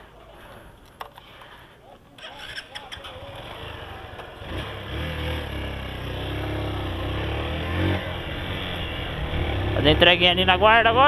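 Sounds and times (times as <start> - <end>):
motorcycle engine pulling away: 2.2 - 11.0.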